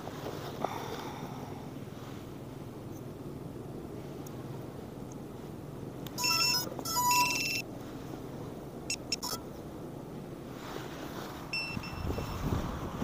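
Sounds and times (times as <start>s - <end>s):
drone electronic startup beeps: 6.2s - 7.6s, 8.9s - 9.4s, 11.6s - 12.3s.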